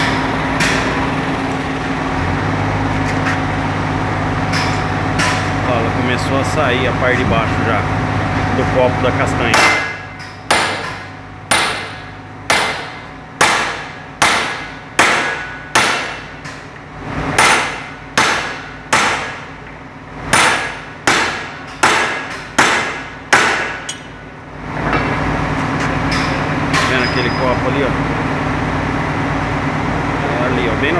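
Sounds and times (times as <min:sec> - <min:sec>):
hammer striking metal: 0:00.0 - 0:01.0, 0:04.5 - 0:05.6, 0:09.5 - 0:16.6, 0:17.4 - 0:19.5, 0:20.3 - 0:24.2.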